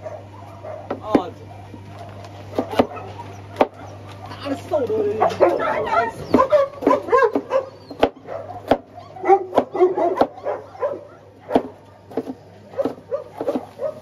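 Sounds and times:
dogs barking and whining: 0:00.0 - 0:14.0
cleaver chopping on wooden board: 0:02.5 - 0:03.0, 0:03.6 - 0:03.8, 0:06.3 - 0:10.4, 0:11.5 - 0:13.8.

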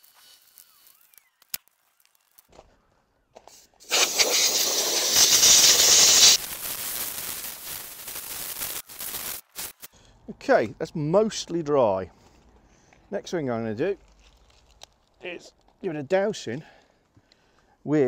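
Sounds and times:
hose water splashing on concrete: 0:03.8 - 0:09.8.

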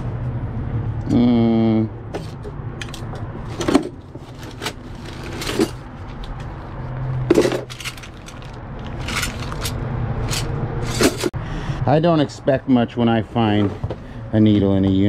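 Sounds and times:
small objects knocking and clinking: 0:07.3 - 0:11.1.

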